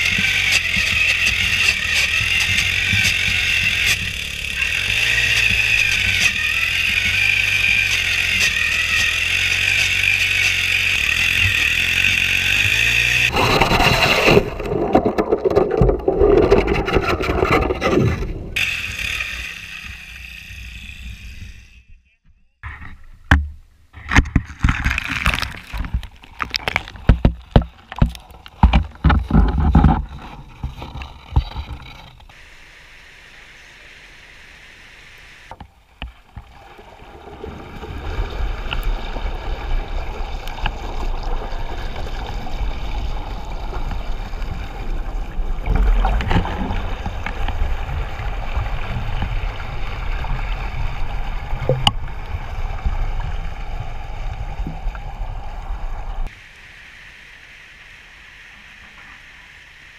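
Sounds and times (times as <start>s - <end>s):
knocks and splashes: 12.6s - 18.5s, 23.2s - 31.9s, 36.0s - 55.4s
underwater rushing and bubbling: 13.3s - 19.1s, 23.9s - 32.5s, 35.5s - 56.4s.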